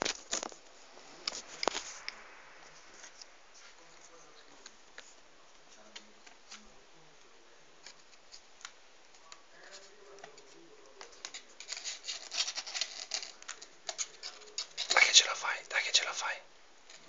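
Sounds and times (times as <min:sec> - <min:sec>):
kitten claws scratching cardboard: 0:07.8 - 0:15.0.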